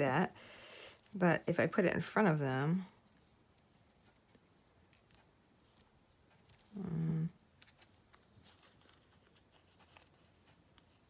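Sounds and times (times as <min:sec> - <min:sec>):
paper pieces ticking: 0:03.0 - 0:11.0
woman humming: 0:06.7 - 0:07.4.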